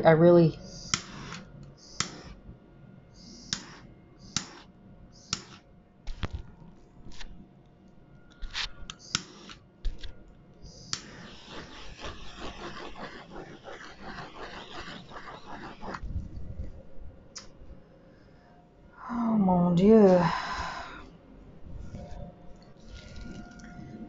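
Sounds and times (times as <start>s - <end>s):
handheld torch hissing: 0.6s - 2.4s, 3.2s - 5.6s, 8.4s - 9.6s, 10.6s - 16.0s.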